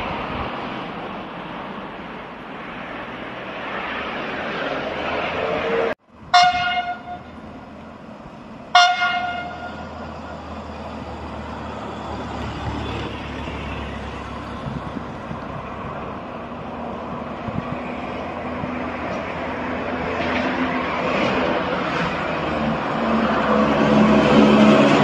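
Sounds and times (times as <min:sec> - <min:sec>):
low rumble of train: 0:00.0 - 0:25.0
train horn blasts: 0:05.7 - 0:07.4, 0:08.7 - 0:10.0.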